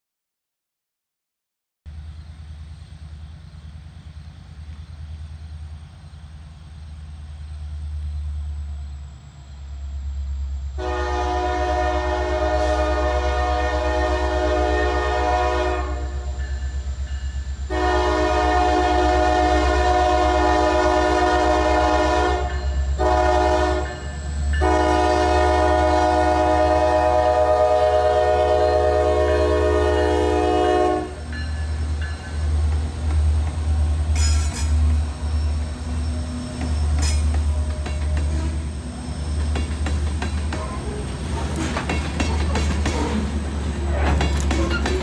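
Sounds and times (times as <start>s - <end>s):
train rumbling: 1.9s - 45.0s
locomotive air horn blasts: 10.8s - 16.4s, 17.7s - 31.3s.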